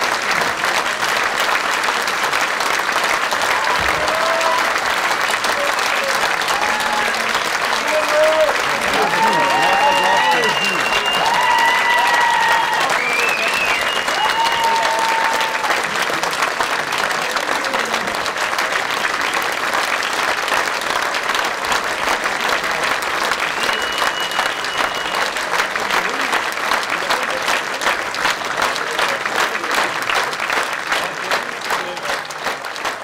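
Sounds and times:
audience applauding: 0:00.0 - 0:33.0
audience cheering: 0:03.3 - 0:16.4, 0:22.4 - 0:26.3.

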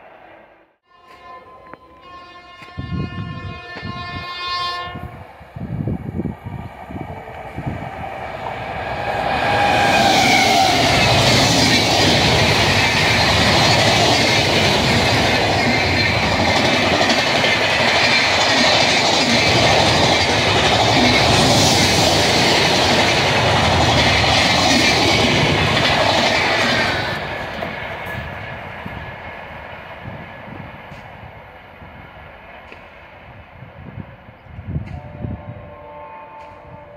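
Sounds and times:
passing train rushing: 0:01.3 - 0:36.9
train wheels clattering: 0:08.6 - 0:29.0.

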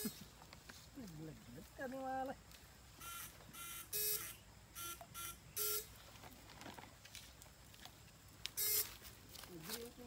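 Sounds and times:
electric fishing shocker buzzing: 0:03.0 - 0:06.0.

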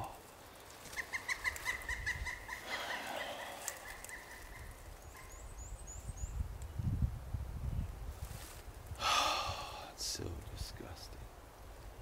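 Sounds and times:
faint rustle: 0:00.0 - 0:06.8, 0:07.8 - 0:09.1.

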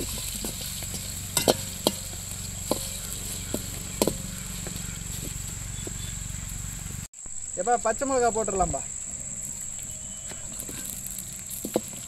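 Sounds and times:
ladle knocking and scraping pot: 0:00.0 - 0:06.0
oil hissing: 0:00.0 - 0:12.0.

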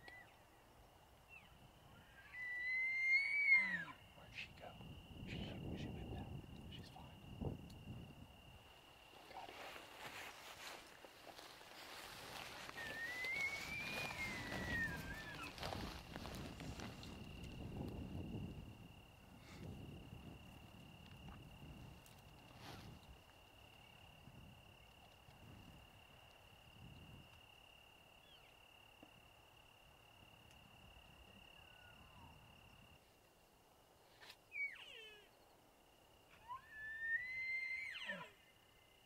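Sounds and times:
high insect trill: 0:00.1 - 0:33.3
elk bugling: 0:09.2 - 0:17.5.

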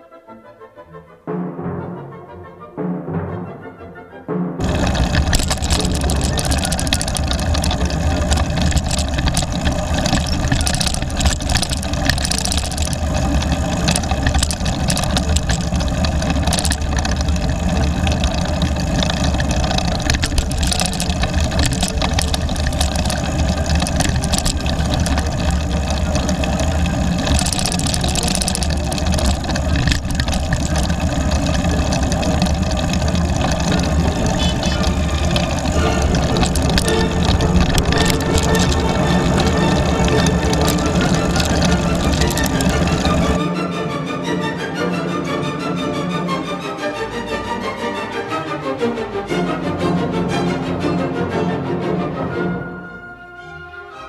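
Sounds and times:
car engines idling: 0:04.6 - 0:43.4
wind and road noise: 0:04.6 - 0:43.4.

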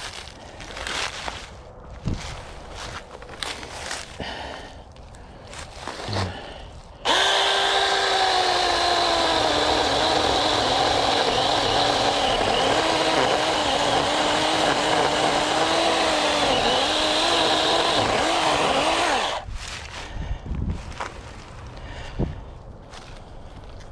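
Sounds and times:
chainsaw cutting wood: 0:07.0 - 0:19.5.

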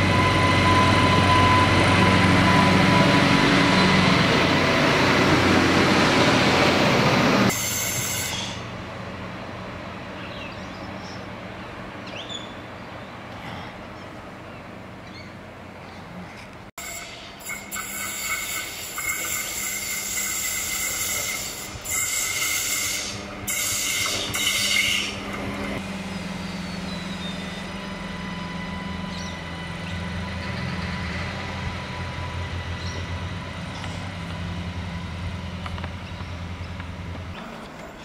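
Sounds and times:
low diesel engine drone: 0:00.0 - 0:07.6, 0:25.0 - 0:38.0
high wheel squeal: 0:07.5 - 0:08.7, 0:16.8 - 0:25.3, 0:26.0 - 0:33.0
wheel-on-rail noise: 0:14.2 - 0:38.0.

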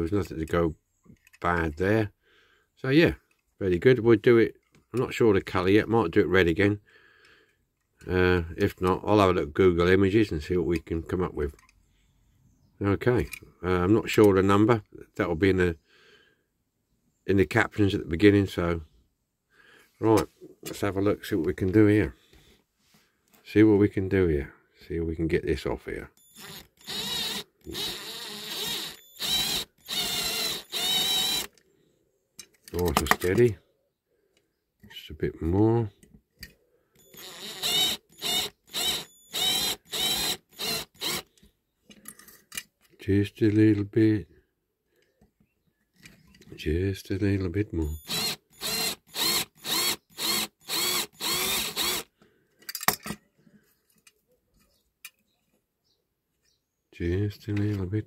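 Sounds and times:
cordless drill grinding into metal: 0:26.2 - 0:31.6, 0:37.0 - 0:41.4, 0:47.8 - 0:52.1.

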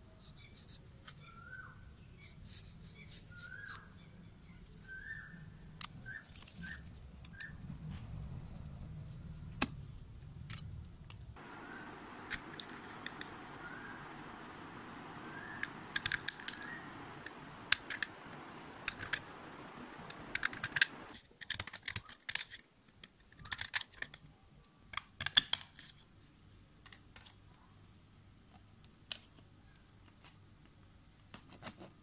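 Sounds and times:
low steady hum: 0:07.9 - 0:21.1.

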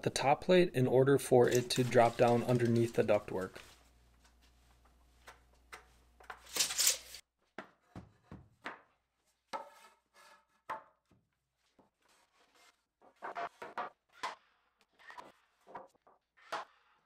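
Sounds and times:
wood scraping: 0:01.3 - 0:03.7.

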